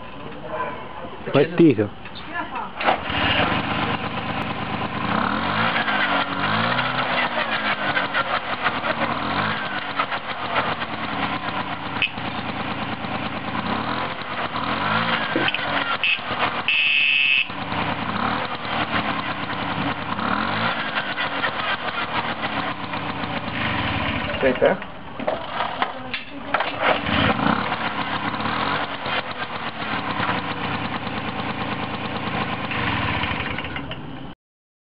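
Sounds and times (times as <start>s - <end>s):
moped engine revving: 2.8s - 34.0s.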